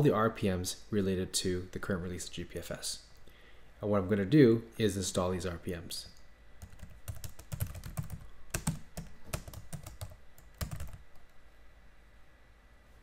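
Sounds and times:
computer keyboard typing: 0:06.6 - 0:11.3.

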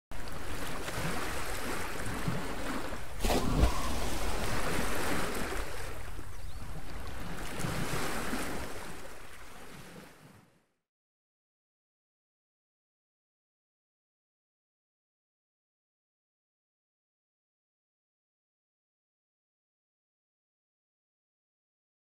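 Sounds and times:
ocean waves washing in: 0:00.2 - 0:10.5.

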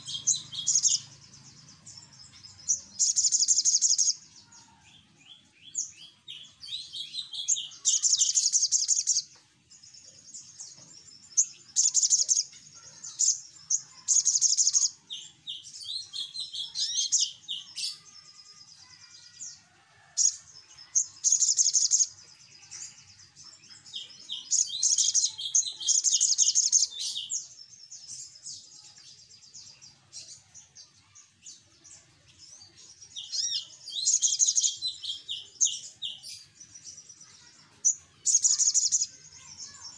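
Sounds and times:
bird buzzy trilling song: 0:00.0 - 0:09.3, 0:09.9 - 0:19.6, 0:20.2 - 0:39.9
bird chirps: 0:00.0 - 0:39.9
soft bird twittering: 0:20.9 - 0:39.9.

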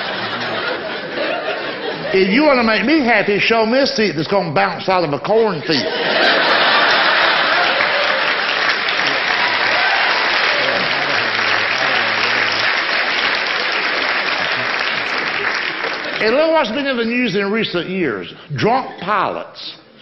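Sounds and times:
audience applauding: 0:00.0 - 0:03.0, 0:06.2 - 0:16.9.

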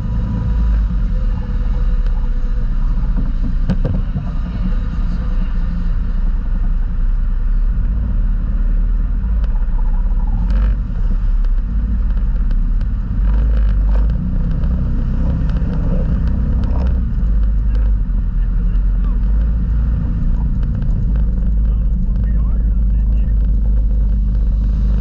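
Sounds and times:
off-road vehicle engine rumbling: 0:00.0 - 0:25.0
knocks and rattles: 0:01.5 - 0:04.5, 0:18.7 - 0:25.0.

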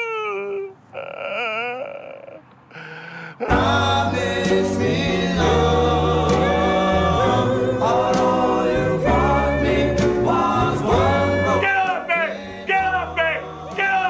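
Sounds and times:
choir singing held notes: 0:03.4 - 0:14.0.

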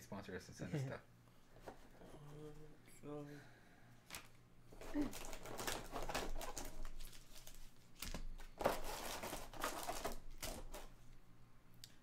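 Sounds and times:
foil and plastic packaging crackling: 0:04.1 - 0:10.9.

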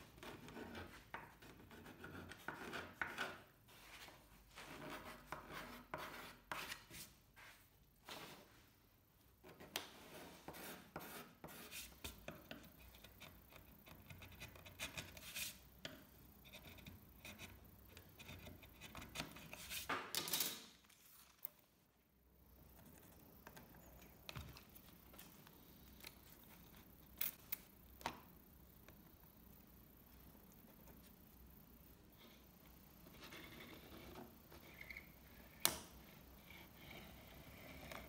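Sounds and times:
pencil marking wood: 0:04.6 - 0:07.0, 0:10.1 - 0:15.6.

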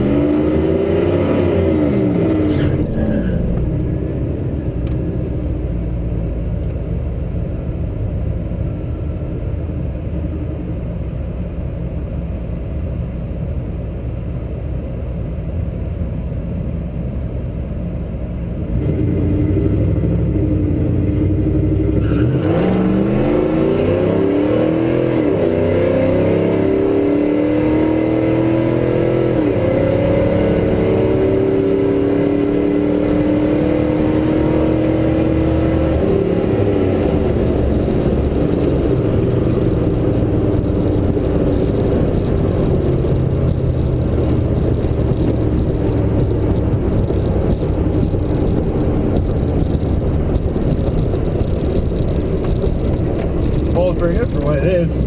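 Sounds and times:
truck engine revving: 0:18.7 - 0:55.0.

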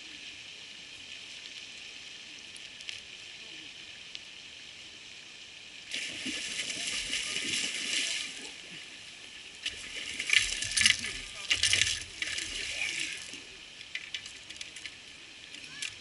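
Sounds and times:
water splashing off net: 0:05.9 - 0:08.5, 0:09.6 - 0:13.4.

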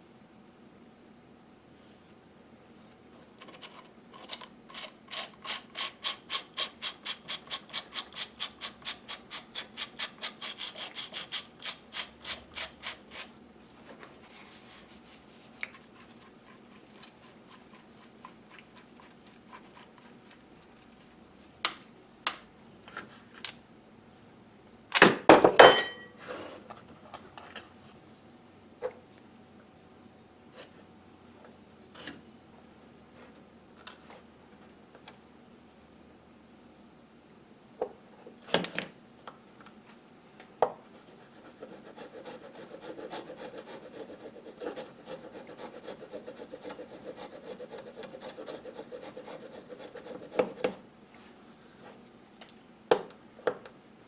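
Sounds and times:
metal clatter on workbench: 0:25.4 - 0:26.2.

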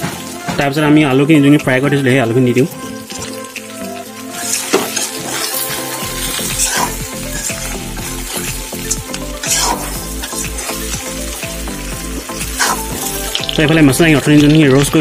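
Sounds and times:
background music with steady beat: 0:00.0 - 0:15.0
food sizzling: 0:00.0 - 0:15.0
metal spatula scraping pan: 0:04.3 - 0:11.4, 0:12.1 - 0:13.6.

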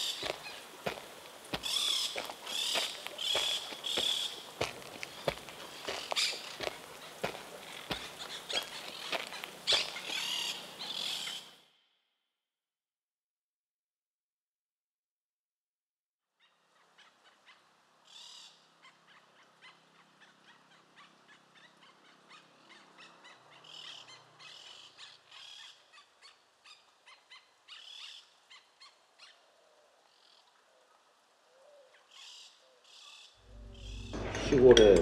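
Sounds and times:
owl hooting: 0:01.5 - 0:04.4
bird chirps and calls: 0:01.6 - 0:04.5, 0:05.1 - 0:11.6.

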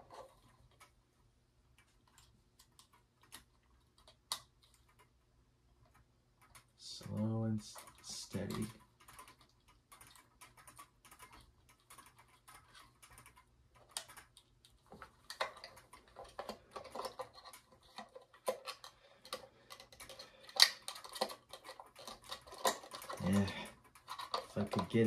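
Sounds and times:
plastic clicks and scrapes: 0:00.0 - 0:01.0, 0:01.7 - 0:05.2, 0:05.8 - 0:25.0.

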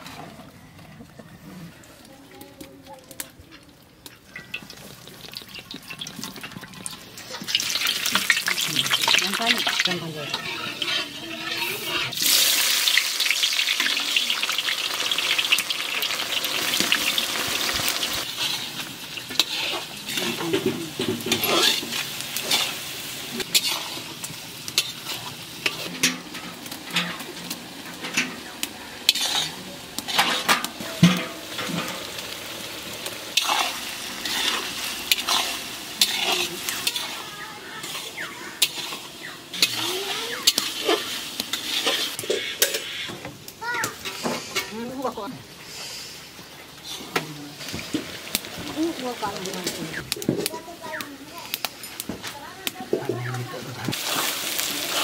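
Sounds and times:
meat sizzling in oil: 0:04.0 - 0:53.0, 0:53.8 - 0:55.0
metal spatula scraping pan: 0:07.8 - 0:12.6, 0:18.1 - 0:22.8, 0:23.4 - 0:32.2, 0:33.4 - 0:43.2, 0:43.9 - 0:44.9.

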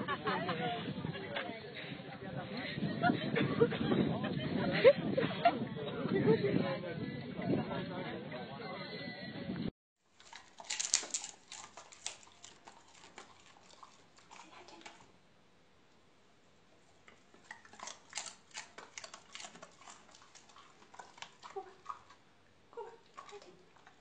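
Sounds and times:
dog claws on hardwood floor: 0:10.2 - 0:15.0.

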